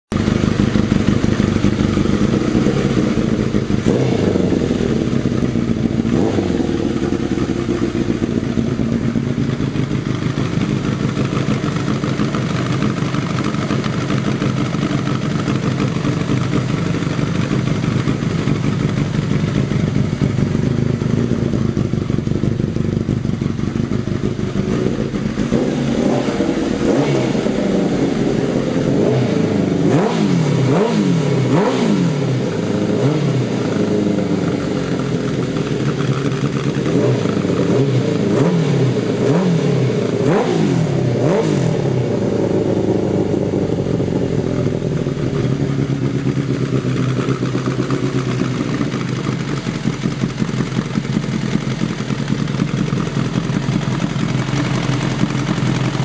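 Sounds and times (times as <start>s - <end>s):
motorcycle engine idling and revving: 0.0s - 56.0s.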